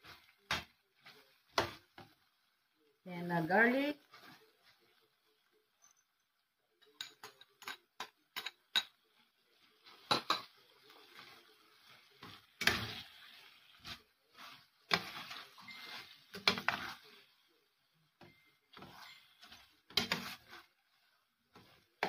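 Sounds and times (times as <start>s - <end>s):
spoon clanking and scraping pan: 0.0s - 2.2s, 6.8s - 17.5s, 18.2s - 22.0s
metal spoon clinking in pan: 6.8s - 9.0s.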